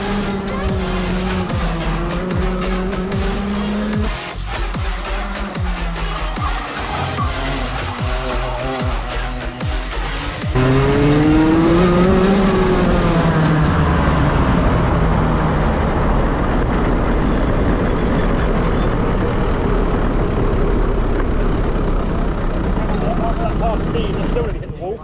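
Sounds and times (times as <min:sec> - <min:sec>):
kart engine accelerating: 0:00.0 - 0:25.0.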